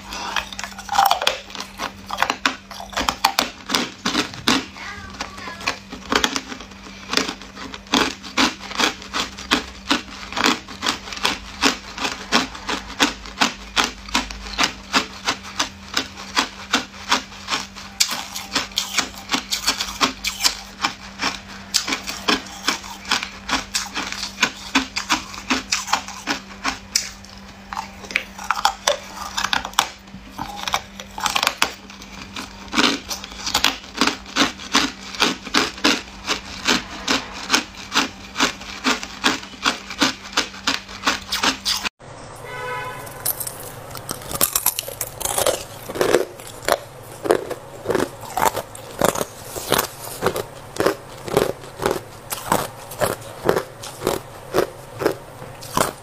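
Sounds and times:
ice cubes crunched by teeth: 0.0 - 4.6, 5.9 - 41.9, 43.0 - 56.0.

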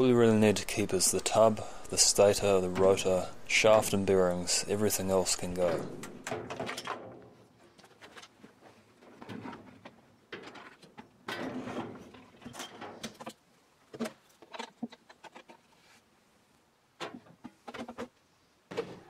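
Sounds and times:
plastic parts knocking and scraping: 5.6 - 16.0, 17.0 - 19.0.

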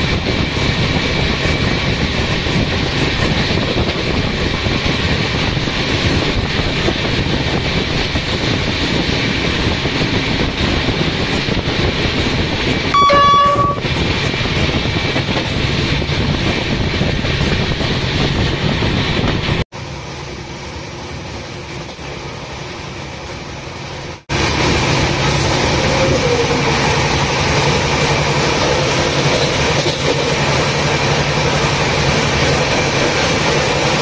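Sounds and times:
rush of wind: 0.0 - 34.0
train wheel noise on rails: 0.0 - 34.0
locomotive horn blast: 12.9 - 13.9.

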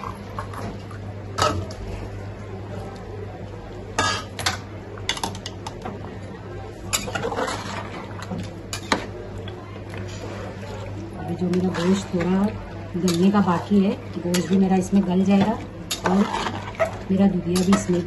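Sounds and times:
metal utensils clinking on pot: 6.9 - 9.1, 13.0 - 13.6, 14.2 - 18.0.

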